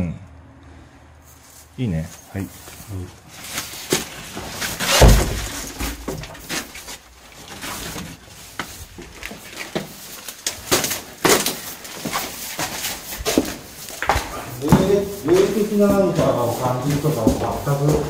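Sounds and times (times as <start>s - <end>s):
papers rustling: 1.5s - 18.0s
footsteps crunching over debris: 1.6s - 18.0s
heavy thump: 4.9s - 6.5s.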